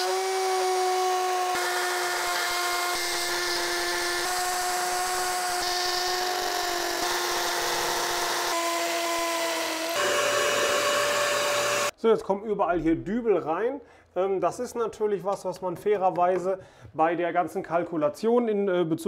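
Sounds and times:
cordless drill boring into masonry: 0.0 - 11.9.

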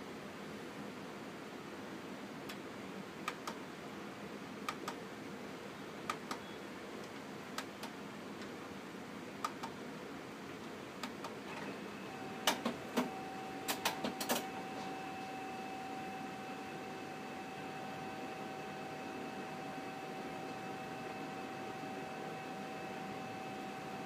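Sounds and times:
printer mechanism whining: 11.1 - 24.0
printer mechanism clacks: 12.4 - 14.5.

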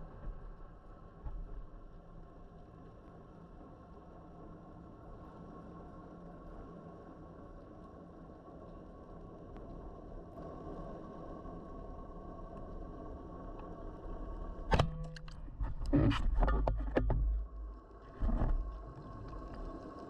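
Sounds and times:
underwater background hum: 0.0 - 20.0.

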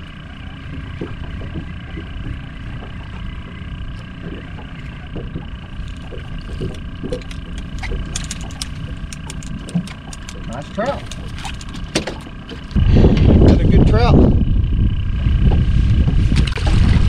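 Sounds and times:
water splashes: 0.0 - 12.8
wind rumbling on microphone: 0.0 - 17.0.

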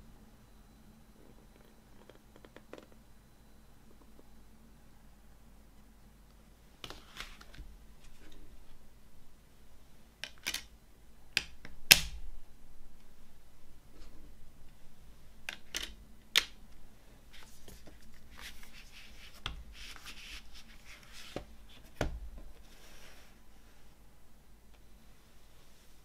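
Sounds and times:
paper pages rustling: 17.3 - 22.0.

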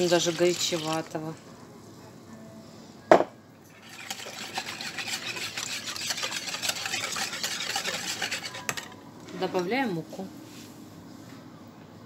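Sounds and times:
whisk beating batter in bowl: 0.0 - 1.2, 3.7 - 9.0.

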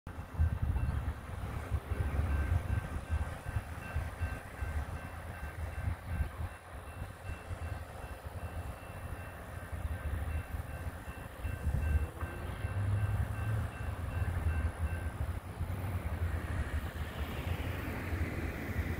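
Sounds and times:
wind buffeting microphone: 0.1 - 7.8, 9.6 - 18.9.

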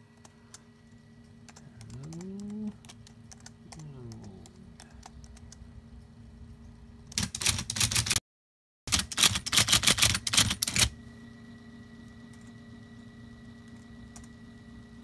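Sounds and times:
typewriter clacking: 7.1 - 8.2, 8.9 - 10.9.

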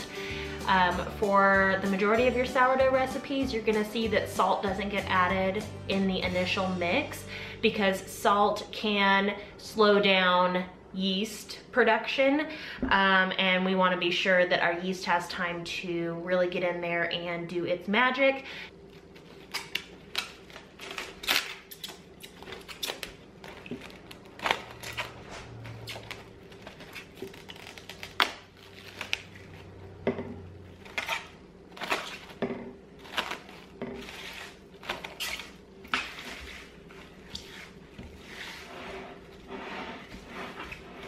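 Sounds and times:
cling wrap crinkling: 18.8 - 29.8, 33.0 - 41.0.

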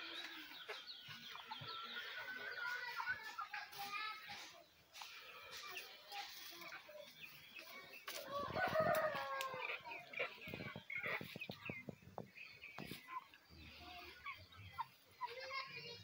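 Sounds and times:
hens clucking: 0.0 - 16.0
rooster crowing: 8.3 - 9.6.

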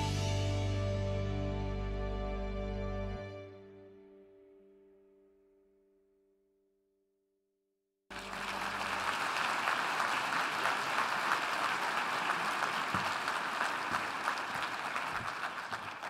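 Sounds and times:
soft music: 0.0 - 5.6
audience applause: 8.1 - 16.0.

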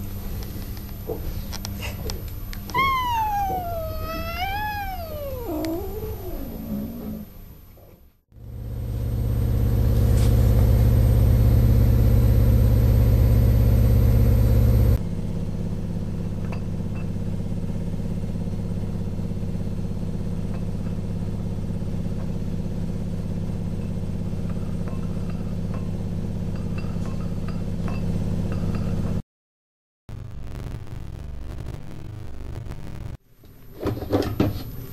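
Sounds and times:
small motor humming: 2.8 - 7.3, 8.4 - 15.0.

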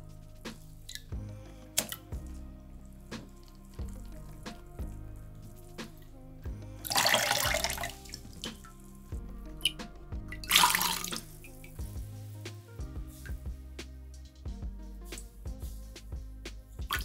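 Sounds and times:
soft background music: 0.0 - 17.0
water gushing from squeezed sponge: 6.8 - 8.7, 10.4 - 11.6.

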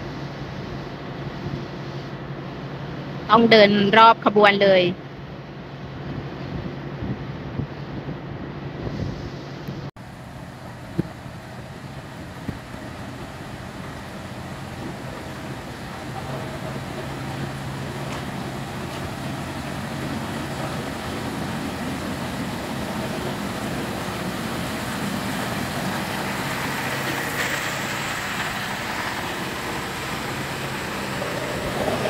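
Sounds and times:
diesel railcar engine hum: 0.0 - 32.0
hiss: 10.2 - 32.0.

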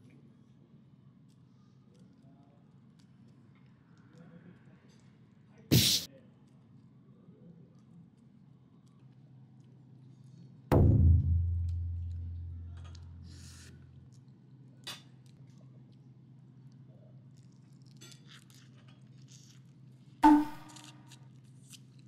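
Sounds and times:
deep drum-like hit: 10.7 - 13.4.

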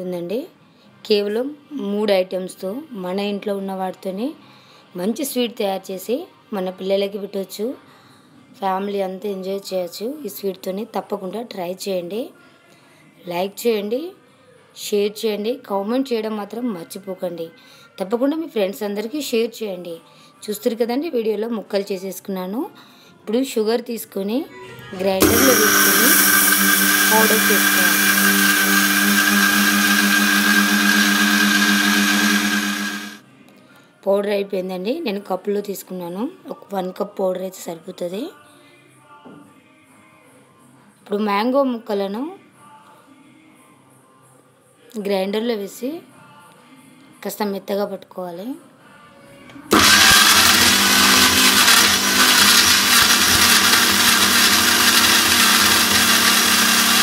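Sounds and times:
mixer grinder motor whine: 25.2 - 33.2, 49.7 - 57.0.

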